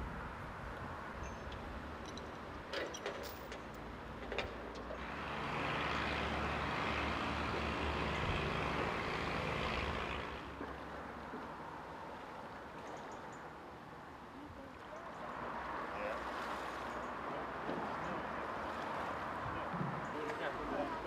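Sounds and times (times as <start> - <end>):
road vehicle running: 2.0 - 11.9.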